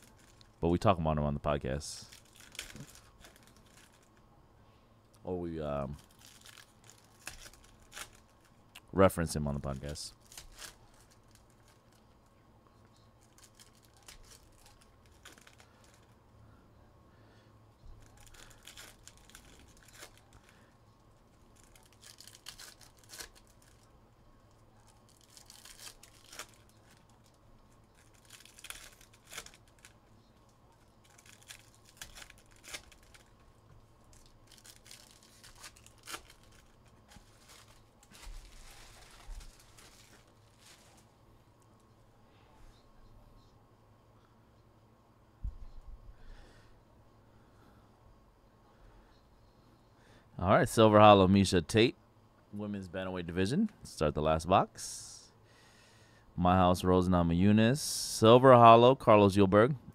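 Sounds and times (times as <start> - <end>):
wrappers tearing and crinkling: 0.0 - 0.6, 1.9 - 4.2, 5.8 - 8.6, 9.6 - 12.1, 13.1 - 16.2, 18.0 - 41.1.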